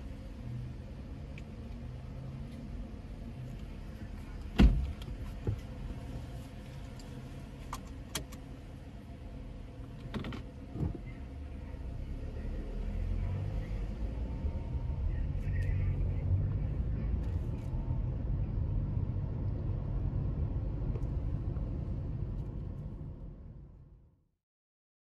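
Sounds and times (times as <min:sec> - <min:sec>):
engine and tyre rumble: 0:00.0 - 0:24.3.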